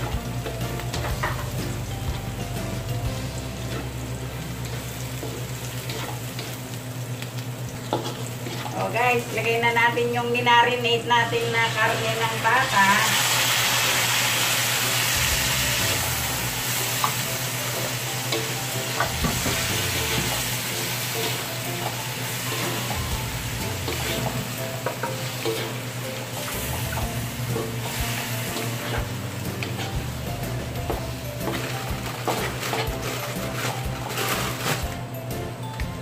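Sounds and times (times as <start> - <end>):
meat sizzling in hot oil: 0.0 - 9.8, 11.5 - 35.0
spatulas scraping a pan: 4.6 - 6.6, 7.9 - 9.0, 23.6 - 25.9, 27.5 - 30.1, 31.4 - 34.9.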